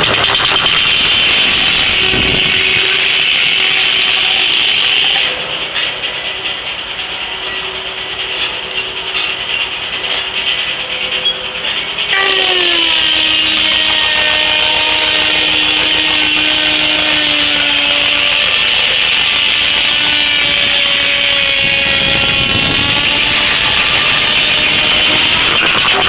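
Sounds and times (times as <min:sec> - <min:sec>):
circular saw blade cutting log: 0:11.6 - 0:26.0.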